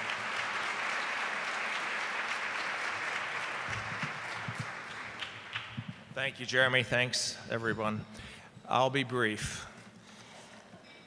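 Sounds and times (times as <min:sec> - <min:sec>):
audience applause: 0:00.0 - 0:06.0.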